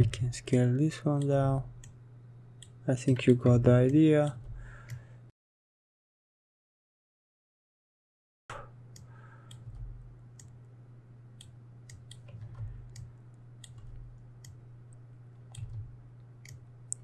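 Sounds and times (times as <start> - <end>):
low steady hum: 0.0 - 5.3, 8.5 - 17.0
computer mouse clicking: 11.4 - 14.6, 15.4 - 17.0.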